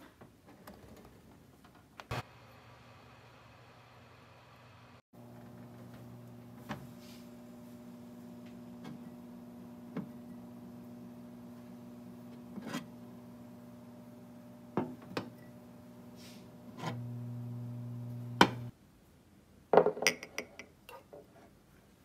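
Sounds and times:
steam oven electrical hum: 2.1s - 18.7s.

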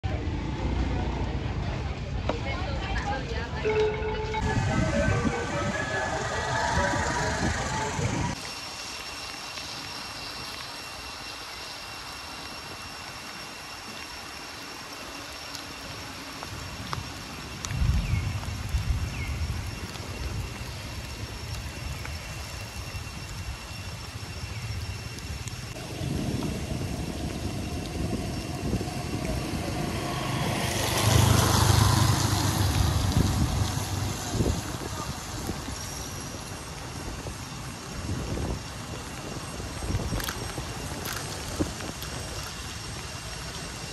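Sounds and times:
steady rain on trees and road: 0.0s - 43.9s
faint high tone: 3.4s - 8.3s
vehicle passing close by: 27.2s - 34.8s.

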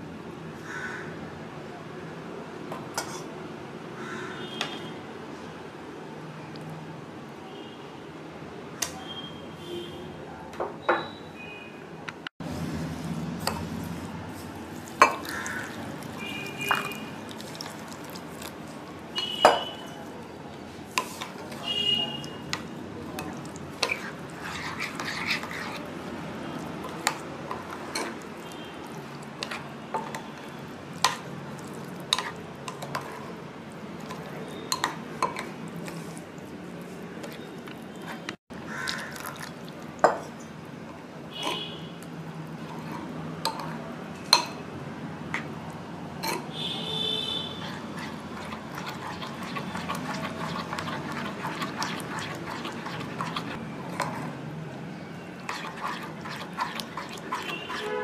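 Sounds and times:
spoon stirring thick batter: 12.6s - 40.4s, 41.3s - 44.6s, 46.2s - 54.5s, 55.2s - 58.0s
spoon clinking against glass bowl: 19.2s - 19.9s.

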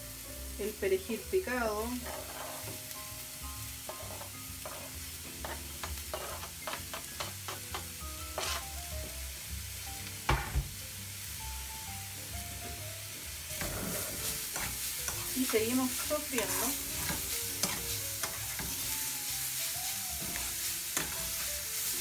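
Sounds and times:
vegetables sizzling in frying pan: 0.0s - 22.0s
utensil scraping pan: 1.9s - 2.8s, 3.9s - 7.6s, 8.3s - 8.7s, 13.5s - 19.0s, 20.2s - 22.0s.

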